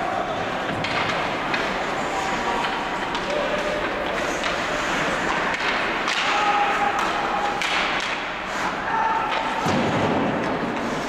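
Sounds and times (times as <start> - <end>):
skates and arena noise: 0.0 - 11.0
puck and stick knocks: 0.6 - 1.8, 2.6 - 8.3, 9.3 - 11.0.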